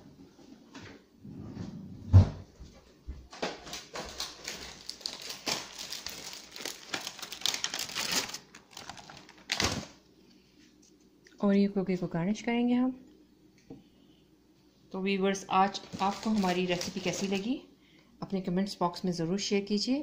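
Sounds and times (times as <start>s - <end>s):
plastic wrapper crinkling: 3.6s - 10.0s, 15.4s - 17.6s.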